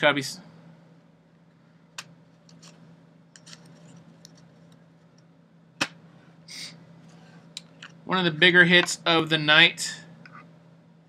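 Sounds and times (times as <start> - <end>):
faint steady hum: 0.0 - 11.0
cards sliding rustle: 2.4 - 2.8, 3.4 - 4.7.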